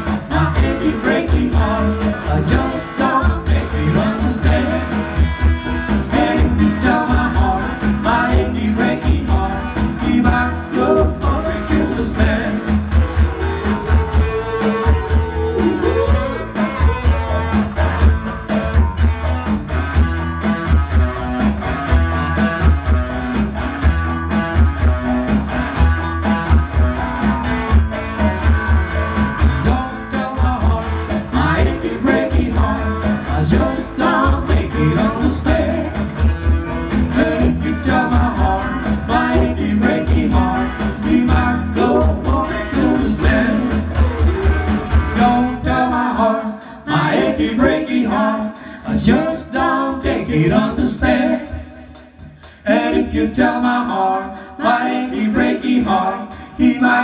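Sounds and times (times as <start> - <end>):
keyboard backing: 0.0 - 46.1
bass: 0.0 - 57.0
electric guitar: 0.0 - 57.0.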